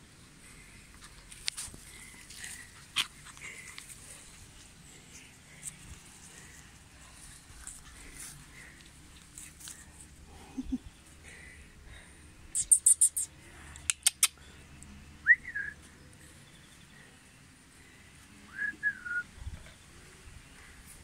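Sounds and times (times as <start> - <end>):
high thin chirps: 12.5 - 13.3.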